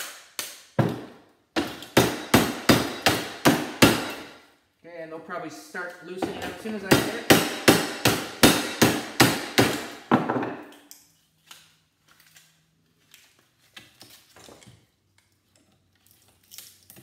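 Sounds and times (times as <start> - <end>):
hammer striking metal: 1.6 - 4.4, 6.3 - 10.6.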